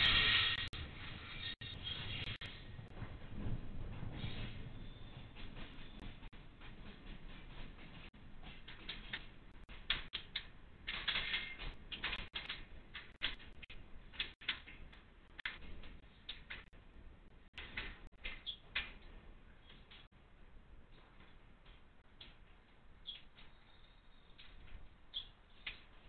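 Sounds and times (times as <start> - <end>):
train wheels clicking over tracks: 2.7 - 16.7.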